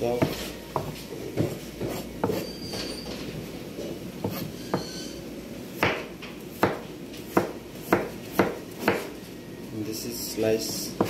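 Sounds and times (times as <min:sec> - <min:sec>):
knife chopping on plastic board: 0:00.2 - 0:02.4, 0:06.6 - 0:09.1.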